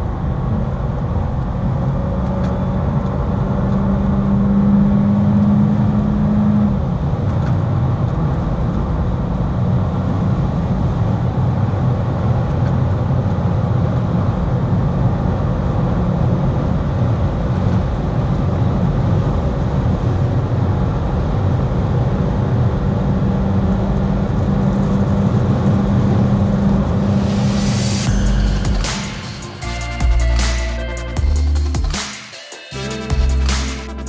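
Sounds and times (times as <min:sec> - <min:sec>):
car engine accelerating: 0:00.0 - 0:32.0.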